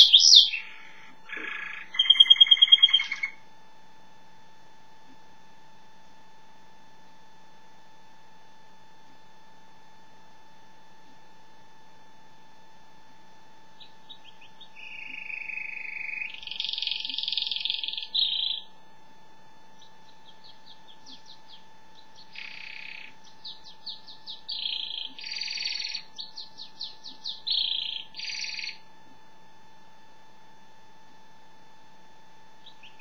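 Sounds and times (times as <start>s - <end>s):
canary singing: 0.0s - 3.4s, 13.8s - 18.7s, 19.8s - 28.8s, 32.6s - 33.0s.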